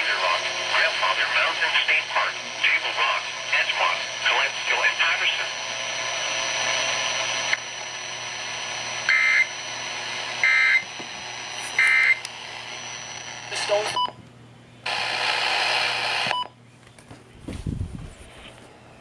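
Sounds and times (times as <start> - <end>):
radio hiss: 0.0 - 14.1, 14.8 - 16.5
screeching data bursts: 9.1 - 9.6, 10.4 - 10.8, 11.8 - 12.2.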